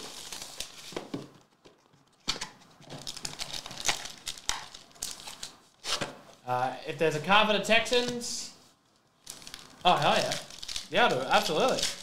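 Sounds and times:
foil packs crinkling: 0.0 - 1.0, 2.8 - 5.6, 9.2 - 12.0.

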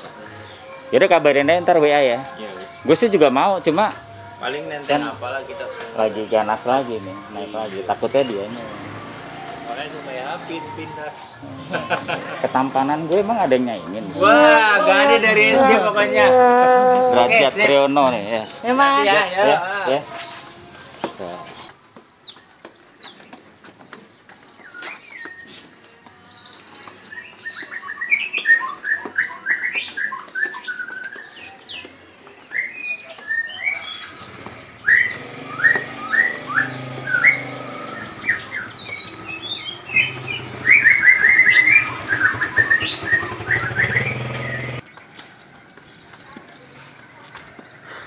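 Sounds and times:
songbirds chirping: 0.0 - 48.0
low motorcycle engine hum: 34.2 - 44.8.

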